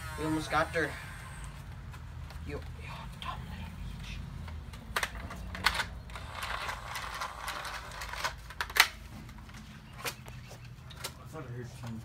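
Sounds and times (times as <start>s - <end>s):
plastic toy blaster clicks and knocks: 4.7s - 9.0s
plastic rattling: 5.0s - 10.2s.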